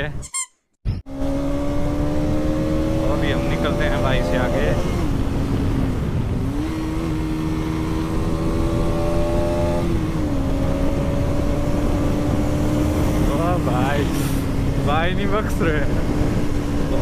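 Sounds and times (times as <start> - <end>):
wind noise on microphone: 4.6 - 17.0.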